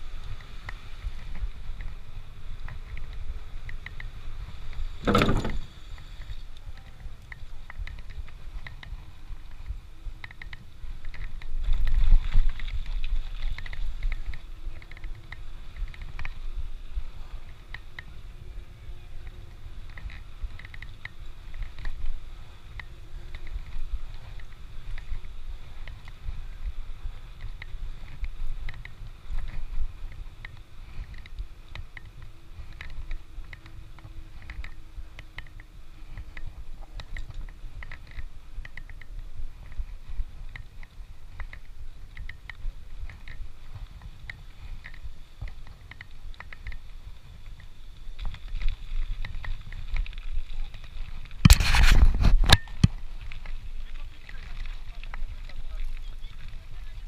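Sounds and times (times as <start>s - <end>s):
wind and tyres rumbling: 0.0s - 57.0s
small rattling clicks: 2.6s - 16.4s, 19.2s - 26.3s.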